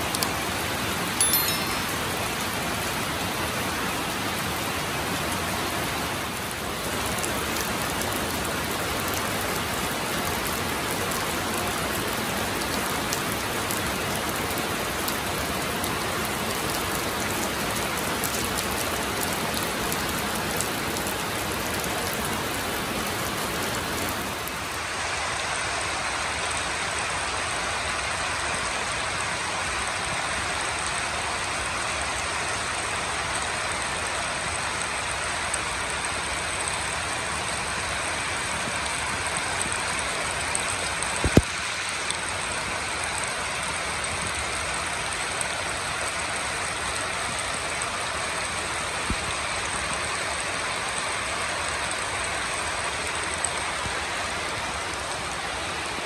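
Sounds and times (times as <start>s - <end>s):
steady rain hiss: 0.0s - 56.0s.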